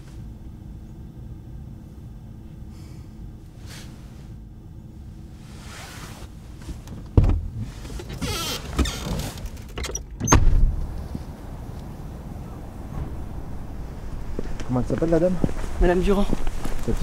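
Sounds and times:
heavy thump inside a car: 6.6s - 8.2s, 10.2s - 11.0s, 12.9s - 14.5s
low rumble: 10.2s - 17.0s.

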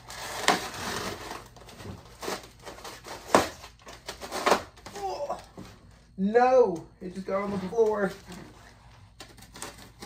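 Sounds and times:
styrofoam cracking: 0.0s - 5.0s.

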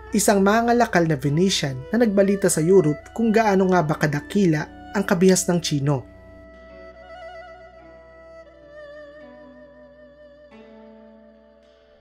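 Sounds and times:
soft instrumental music: 0.0s - 12.0s.

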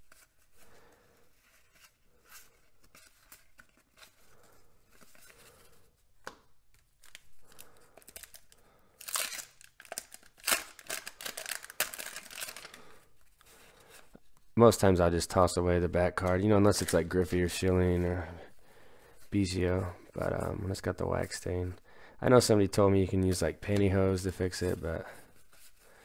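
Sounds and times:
paper wrapper tearing and crinkling: 6.9s - 12.9s.

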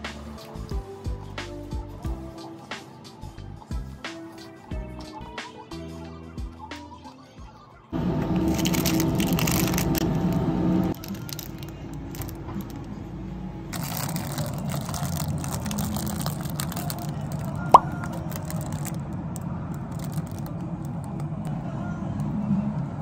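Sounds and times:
plastic wrapper crinkling: 8.2s - 12.9s, 13.7s - 21.4s.

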